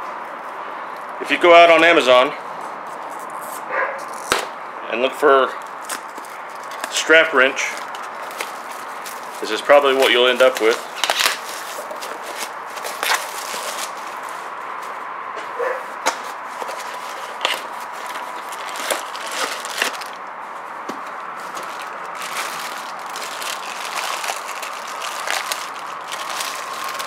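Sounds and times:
plastic bag crinkling: 5.9s - 14.4s, 16.6s - 20.2s, 21.4s - 27.0s.

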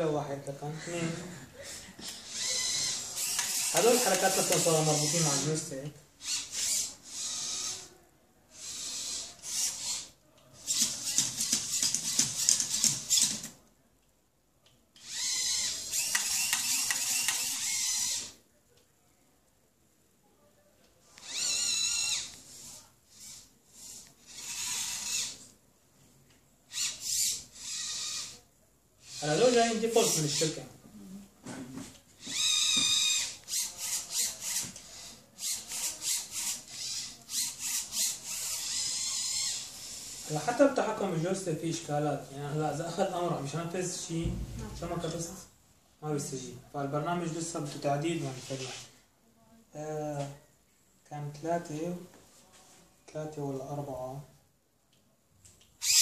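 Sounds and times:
servo motors whirring: 2.2s - 7.9s, 8.6s - 13.4s, 15.0s - 18.4s, 21.2s - 25.5s, 26.7s - 28.4s, 29.0s - 30.6s, 32.2s - 40.5s, 55.8s - 56.0s
servo clicks: 2.3s - 4.7s.

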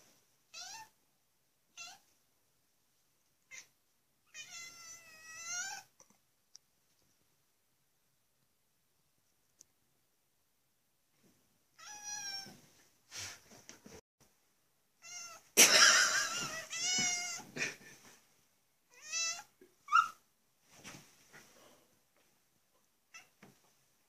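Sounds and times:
cat chirping and meowing: 0.5s - 1.0s, 1.7s - 2.1s, 3.5s - 6.0s, 11.8s - 12.6s, 15.0s - 15.4s, 16.4s - 17.5s, 18.9s - 20.2s, 23.1s - 23.4s.

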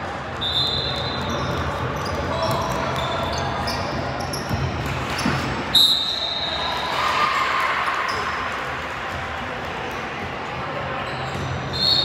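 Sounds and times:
shrill whistle blast: 0.4s - 1.3s, 5.7s - 6.7s, 11.7s - 12.0s.

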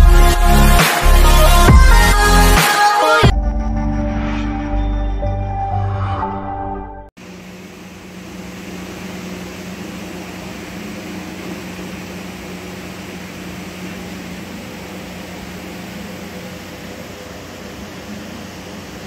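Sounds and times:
steady background hum and hiss: 7.2s - 19.0s.

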